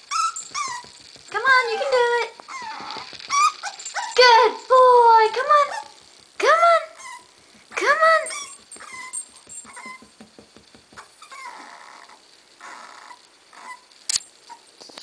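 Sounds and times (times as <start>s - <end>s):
puppy whimpering: 0.1s - 4.3s, 6.8s - 10.1s, 11.0s - 13.9s
sharp click: 14.1s - 14.3s.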